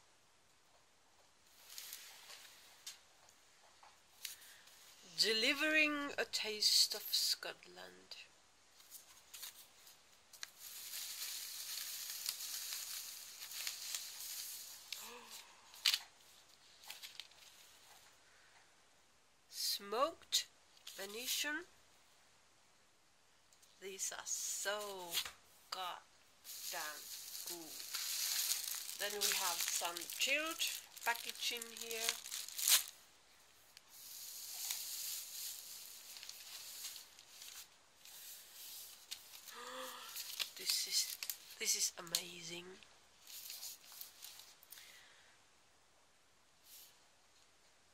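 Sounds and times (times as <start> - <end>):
packing straw rustling: 1.5 - 2.8, 8.8 - 15.0, 26.4 - 33.0, 33.8 - 39.5, 43.2 - 44.6.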